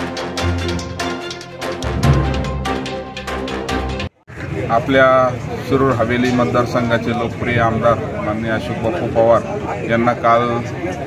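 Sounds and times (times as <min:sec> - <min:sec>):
quick percussive hits: 0:00.0 - 0:04.1
theme music with deep bass: 0:00.0 - 0:04.2.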